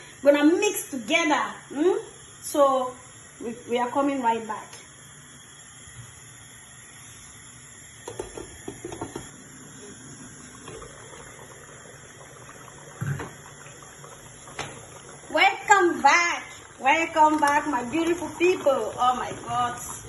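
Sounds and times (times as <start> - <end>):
soup simmering in a pot: 4.8 - 20.0.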